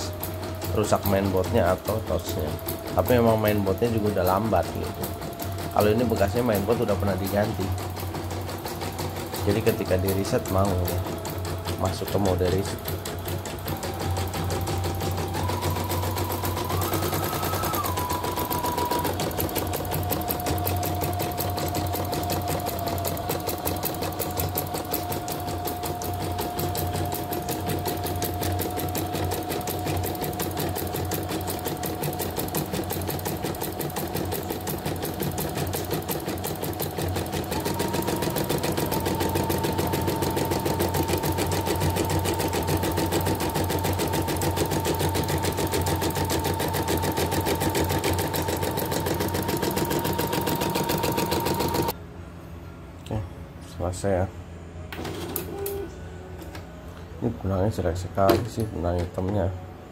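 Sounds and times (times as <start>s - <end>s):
motor whine: 0.0s - 33.2s
embroidery machine stitching clatter: 0.0s - 52.0s.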